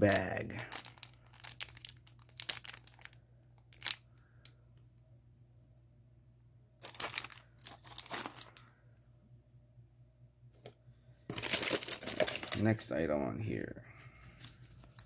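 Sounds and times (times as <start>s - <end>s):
plastic wrappers crinkling: 0.0s - 4.0s, 6.8s - 8.7s, 11.3s - 12.8s, 14.2s - 15.0s.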